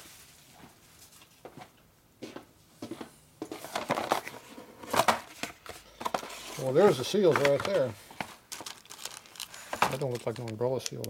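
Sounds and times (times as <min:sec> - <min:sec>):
cardboard and packaging rustling: 0:03.4 - 0:11.0.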